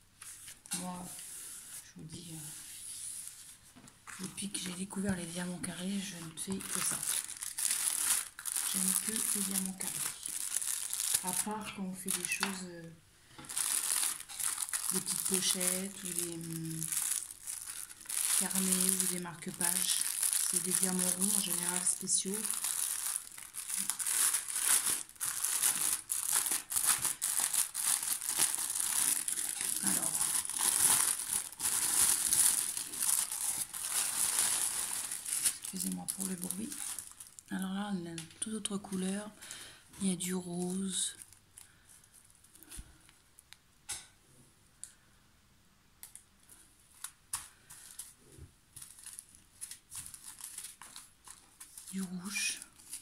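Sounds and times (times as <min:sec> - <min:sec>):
plastic bag crinkling: 0:04.0 - 0:38.2, 0:46.9 - 0:53.0.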